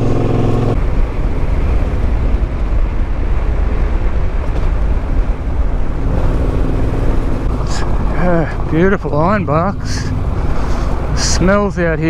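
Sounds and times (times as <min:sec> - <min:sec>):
motorcycle engine running: 0:00.0 - 0:01.0
wind buffeting microphone: 0:00.0 - 0:12.0.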